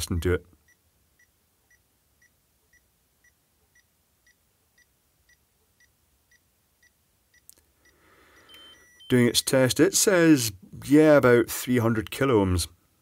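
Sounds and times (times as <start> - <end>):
insulation tester beeping: 0.7 - 9.5.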